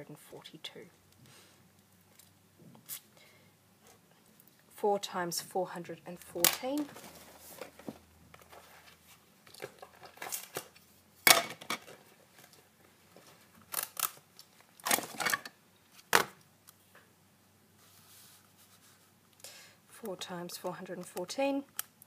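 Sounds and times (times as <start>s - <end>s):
paper rustling: 6.8s - 10.8s.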